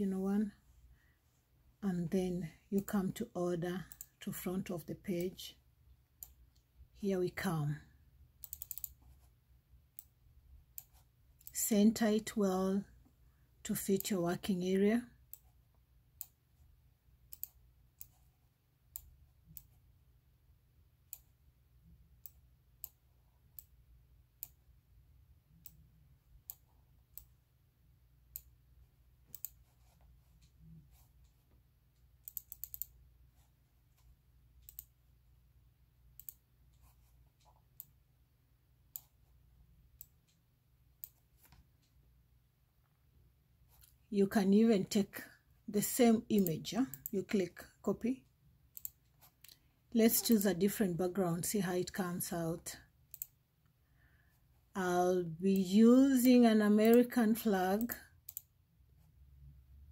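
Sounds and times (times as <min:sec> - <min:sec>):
computer mouse clicking: 0:03.8 - 0:04.2, 0:08.4 - 0:09.3, 0:16.2 - 0:16.4, 0:17.3 - 0:19.8, 0:21.1 - 0:21.4, 0:22.2 - 0:23.8, 0:24.4 - 0:24.6, 0:25.5 - 0:27.4, 0:28.3 - 0:28.6, 0:29.2 - 0:35.0, 0:36.1 - 0:38.0, 0:38.9 - 0:39.3, 0:40.0 - 0:40.4, 0:41.0 - 0:42.0, 0:46.4 - 0:47.1, 0:48.7 - 0:50.6, 0:53.1 - 0:53.4, 0:57.8 - 0:58.5.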